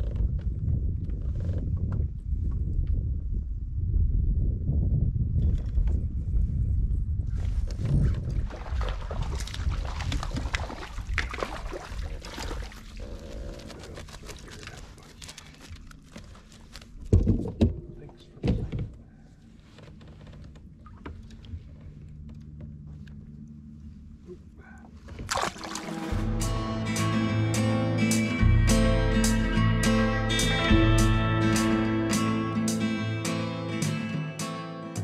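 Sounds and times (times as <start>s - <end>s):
handling clicks and rustles: 13.5s - 23.4s
guitar music: 25.7s - 35.0s.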